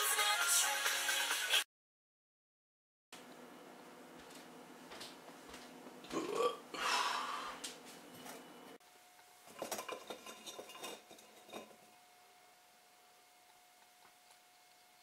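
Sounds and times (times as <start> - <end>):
loud burp: 6.1 - 6.9.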